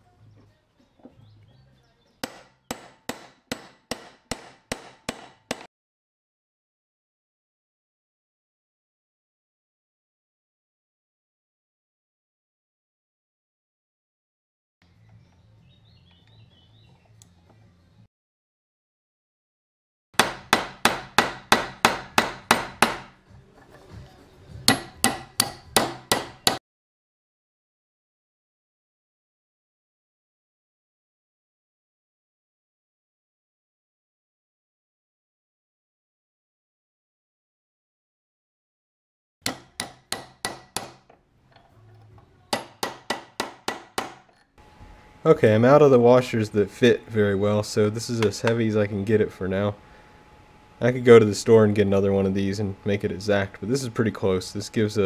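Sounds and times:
hammer striking metal: 2.2 - 5.7, 20.2 - 23.2, 24.6 - 26.6, 39.4 - 41.1, 42.5 - 44.4
hammer ringing on steel: 24.7 - 26.6.

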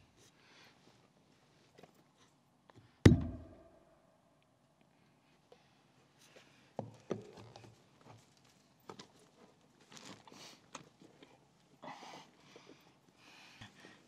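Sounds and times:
plastic pipe knocking and clicking: 3.1 - 3.7.

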